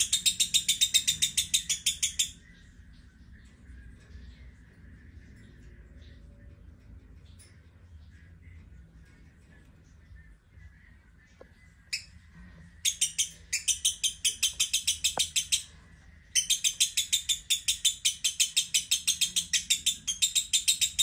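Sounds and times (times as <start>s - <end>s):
lovebird chattering trill: 0.0s - 2.4s, 12.8s - 15.7s.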